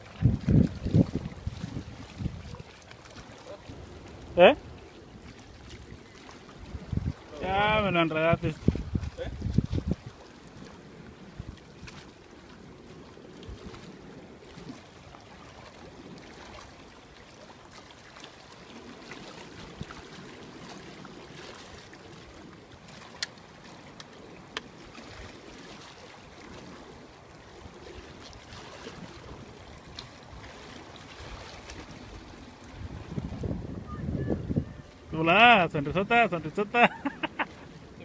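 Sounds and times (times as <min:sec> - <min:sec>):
wind on microphone: 0:00.0 - 0:16.7, 0:18.7 - 0:22.6, 0:26.4 - 0:36.0
sea water washing against rocks: 0:00.0 - 0:38.0.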